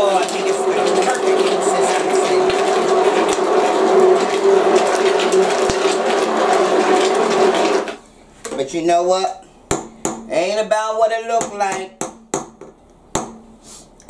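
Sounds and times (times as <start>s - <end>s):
immersion blender motor whine: 0.0s - 8.0s
soup churning: 0.0s - 8.0s.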